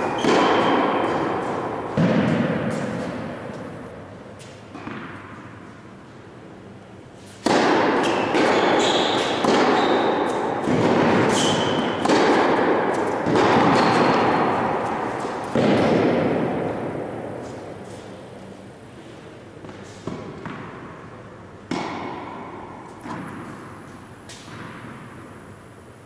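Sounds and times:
sneakers squeaking on court: 0.0s - 3.9s, 8.0s - 12.1s
balls bouncing on hard court: 0.0s - 5.7s, 7.3s - 18.6s, 19.6s - 25.4s
tennis balls struck by rackets: 0.0s - 5.8s, 7.3s - 18.7s, 19.6s - 25.6s.

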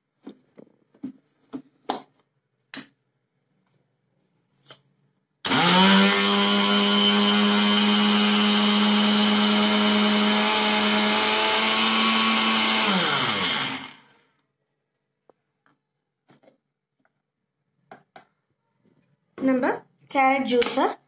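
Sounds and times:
mixer grinder motor: 5.4s - 14.2s.

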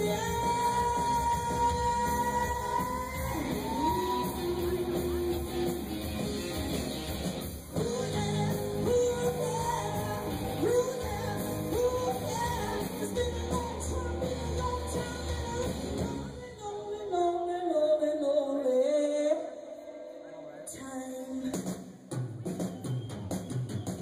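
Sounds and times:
woman singing: 0.0s - 5.5s, 7.8s - 19.7s, 20.7s - 21.7s
live rock band playing: 0.0s - 16.4s.

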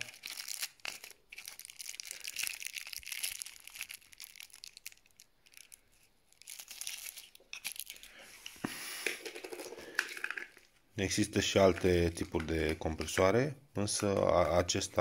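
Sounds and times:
plastic bags crinkling: 0.0s - 8.3s.

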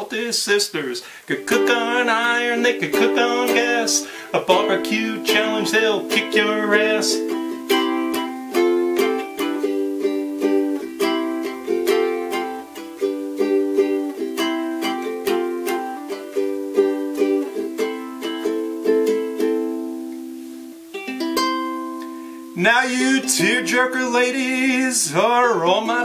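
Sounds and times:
ukulele strumming: 0.0s - 26.0s.

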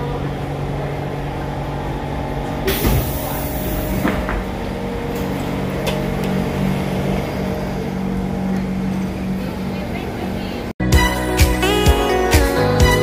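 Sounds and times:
stopped train humming: 0.0s - 13.0s
train doors opening with hiss: 2.5s - 6.8s.

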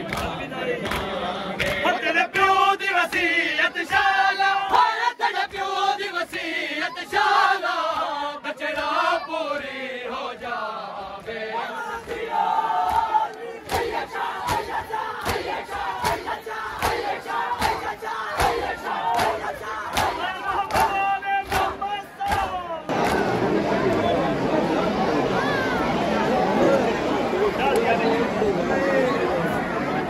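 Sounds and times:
men chanting a lament: 0.0s - 23.1s
hands slapping chests: 12.9s - 23.2s.

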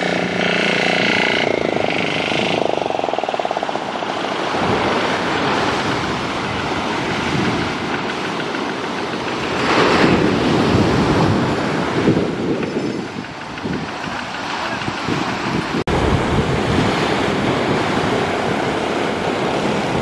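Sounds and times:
surf breaking on beach: 4.0s - 20.0s.

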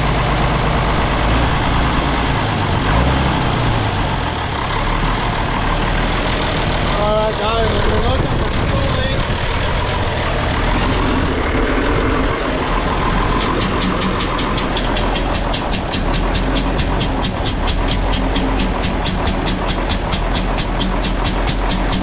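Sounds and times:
diesel engine running: 0.0s - 22.0s
rapid high ticking: 12.9s - 22.0s.

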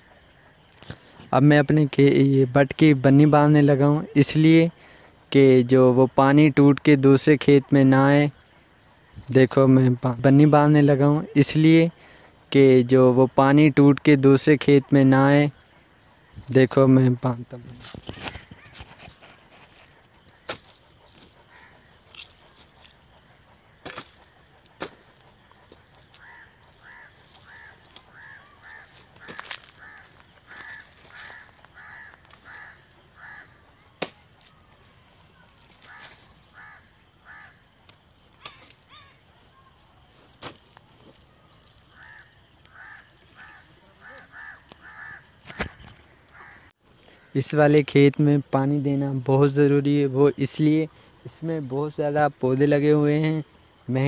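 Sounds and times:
soil scraping: 17.5s - 23.1s, 23.8s - 28.1s.

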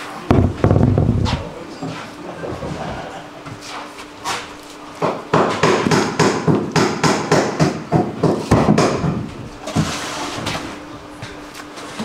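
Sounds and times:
hammer striking: 5.0s - 9.2s.

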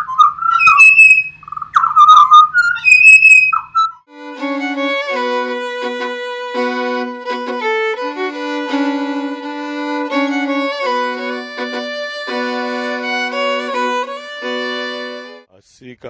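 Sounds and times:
violin melody with trills: 2.8s - 15.5s.

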